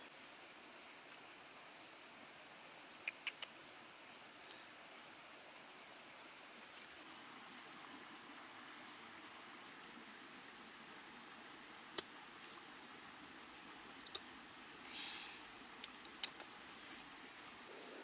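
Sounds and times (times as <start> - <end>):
faint steady hiss: 0.0 - 18.0
small ticks: 3.0 - 3.6, 14.0 - 14.3.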